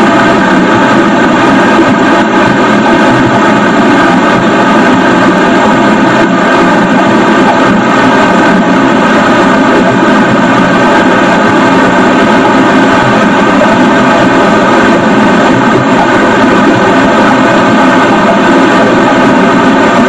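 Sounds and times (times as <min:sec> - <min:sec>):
rocket engine exhaust roar: 0:00.0 - 0:20.0
steady tones: 0:00.0 - 0:20.0.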